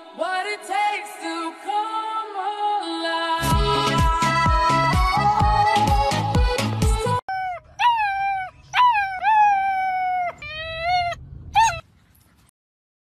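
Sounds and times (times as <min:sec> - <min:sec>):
puppy howling: 0:07.3 - 0:11.8.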